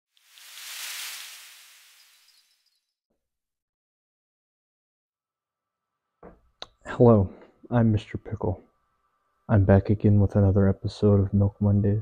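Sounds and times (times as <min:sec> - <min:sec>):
hissing whoosh: 0:00.2 - 0:02.4.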